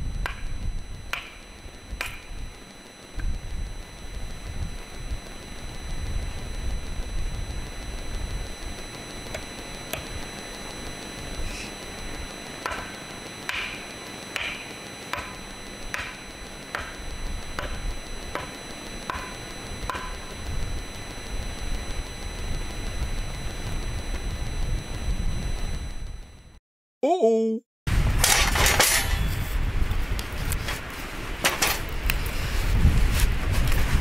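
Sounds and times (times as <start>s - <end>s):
wind rumble on microphone: 0.0s - 8.9s, 19.6s - 26.5s, 27.9s - 34.0s.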